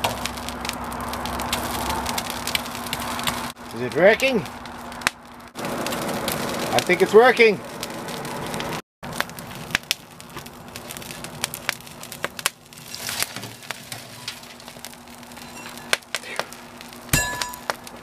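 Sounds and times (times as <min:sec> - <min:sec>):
forge fire crackling and popping: 0:00.0 - 0:18.0.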